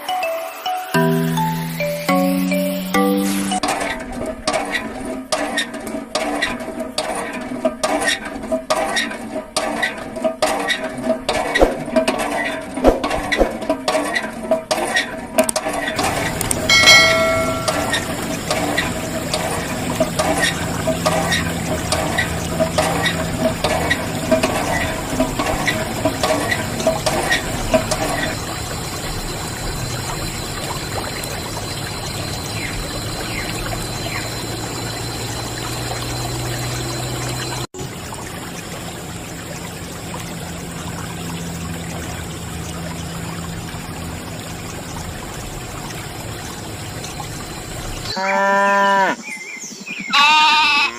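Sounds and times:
water splashing in spurts: 0:03.3 - 0:48.2
water trickling: 0:15.9 - 0:49.0.

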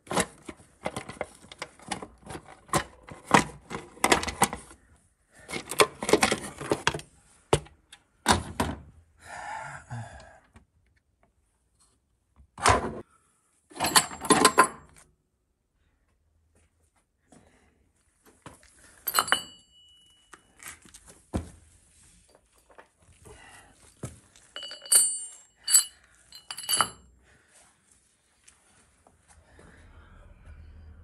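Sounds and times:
tools and metal parts knocking: 0:13.8 - 0:14.9, 0:19.1 - 0:20.0, 0:24.6 - 0:27.0
bright metallic clinking: 0:19.1 - 0:20.4, 0:24.6 - 0:27.0.

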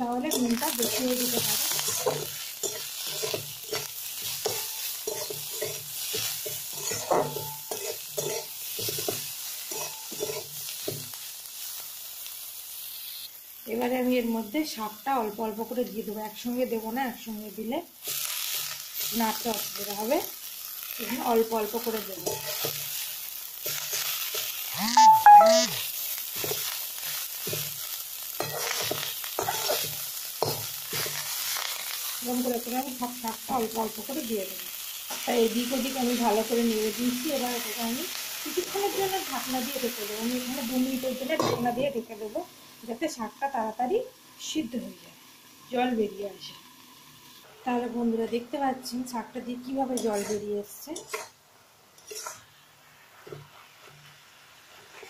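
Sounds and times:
vegetables sizzling in hot oil: 0:00.0 - 0:55.0
spatula scraping a metal pan: 0:00.3 - 0:11.1, 0:22.2 - 0:22.9, 0:23.6 - 0:24.5, 0:28.4 - 0:31.6, 0:49.9 - 0:51.4, 0:52.0 - 0:52.5.

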